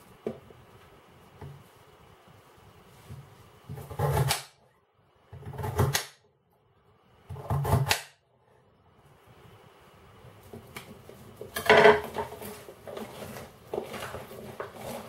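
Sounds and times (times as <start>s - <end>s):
knife slicing potato: 3.6s - 4.6s, 5.4s - 6.2s, 7.3s - 8.2s.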